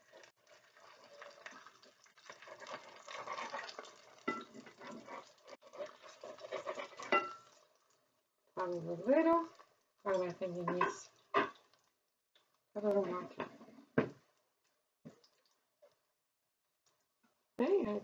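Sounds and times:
pancakes sizzling in hot oil: 0.0 - 12.6.

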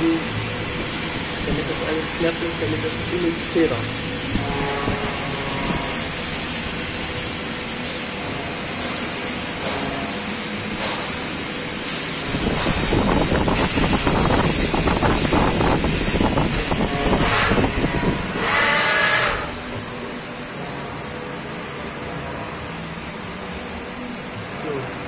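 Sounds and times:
rough metal cutting noise: 0.0 - 7.1, 11.8 - 20.2
lathe spindle running: 0.0 - 21.2.

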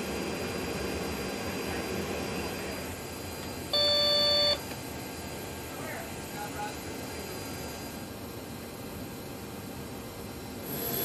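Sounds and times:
loud electronic beep: 3.8 - 4.6.

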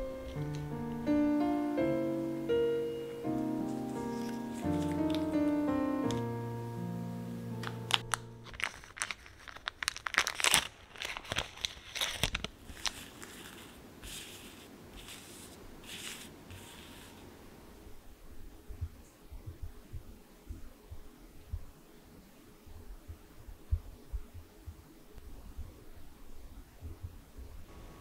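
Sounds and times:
plastic bag crinkling: 0.0 - 1.0, 3.6 - 6.3, 7.6 - 17.2
soft piano music: 0.0 - 8.8
paper sheets rustling: 0.1 - 1.0, 3.4 - 6.3, 7.6 - 17.3.

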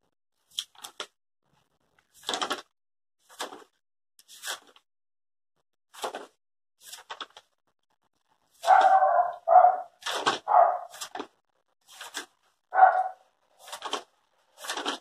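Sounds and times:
crochet hook rustling fabric: 10.5 - 15.0.

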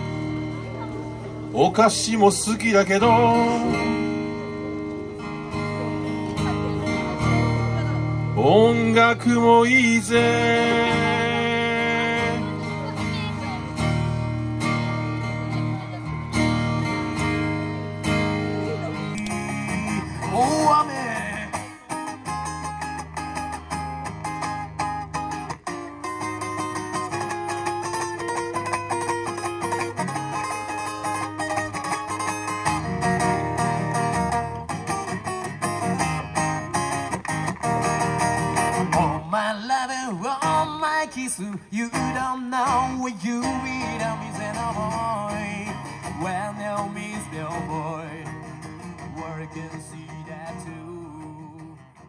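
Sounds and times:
acoustic guitar strumming: 0.0 - 52.0.

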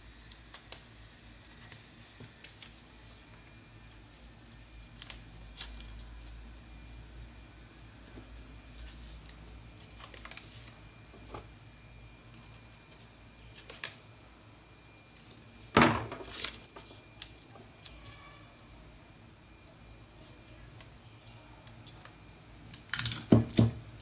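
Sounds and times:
paper rustling: 8.0 - 10.8, 16.2 - 18.4.

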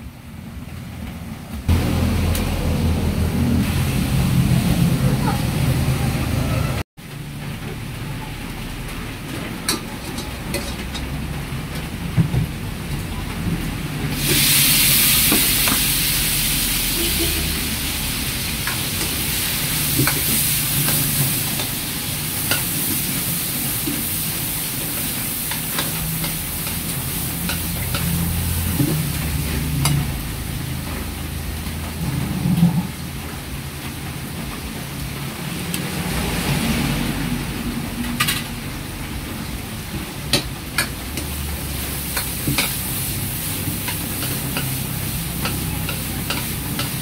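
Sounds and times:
gas burner rumbling: 0.0 - 47.0
food sizzling in wok: 1.7 - 47.0
spatula scraping wok: 9.5 - 11.7, 14.1 - 33.0, 40.2 - 47.0.

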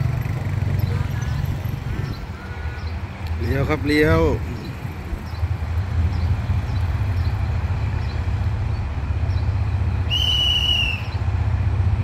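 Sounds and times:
diesel locomotive engine rumbling: 0.0 - 12.0
high train whistle: 10.1 - 11.2.

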